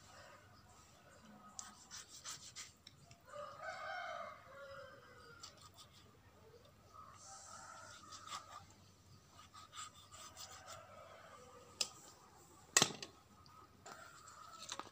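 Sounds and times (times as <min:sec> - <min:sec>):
rooster crowing: 0:03.2 - 0:05.7, 0:10.2 - 0:11.8
knife cutting through chicken: 0:07.9 - 0:08.7.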